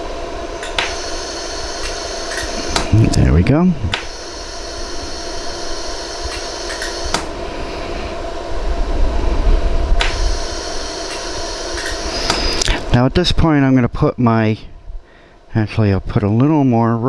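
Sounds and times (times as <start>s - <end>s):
laser welder humming: 0.0s - 13.0s
laser pulse ticks: 0.6s - 3.3s, 3.9s - 7.3s, 10.0s - 12.7s
low rumble: 7.3s - 10.5s.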